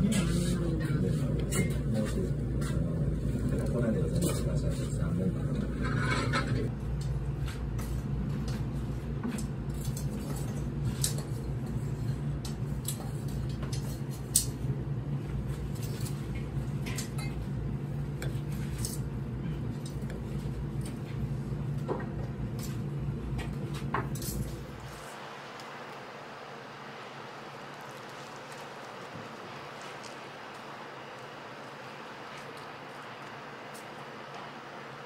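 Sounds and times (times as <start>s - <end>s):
restaurant hum: 0.0s - 35.0s
ceramic dishes and utensils clinking: 5.7s - 6.7s.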